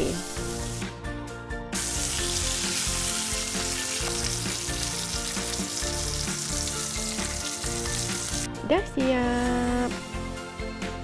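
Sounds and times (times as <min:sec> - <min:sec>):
steak sizzling in butter: 0:00.0 - 0:00.9, 0:01.8 - 0:08.5.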